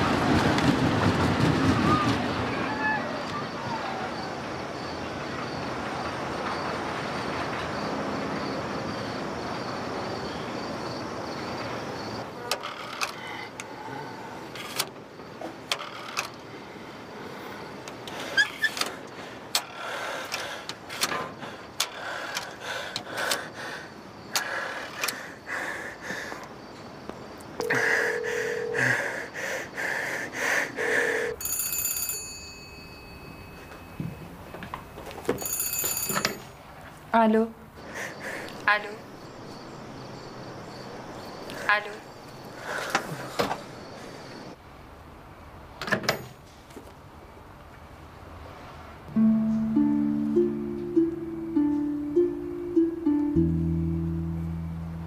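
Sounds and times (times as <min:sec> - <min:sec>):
rotary telephone ringing: 0:27.6 - 0:28.9, 0:31.3 - 0:36.6.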